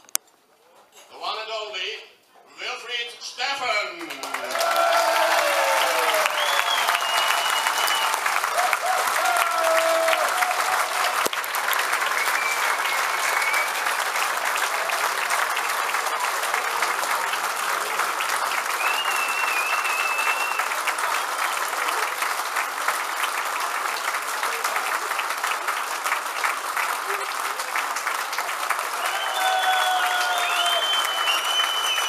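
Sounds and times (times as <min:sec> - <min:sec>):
crowd applauding: 0:03.8 - 0:32.0.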